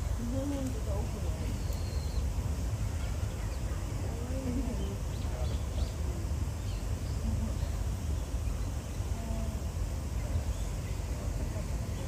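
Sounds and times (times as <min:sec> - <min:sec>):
faint distant voices: 0:00.0 - 0:12.0
steady low rumble: 0:00.0 - 0:12.0
faint high chirps: 0:01.4 - 0:03.9.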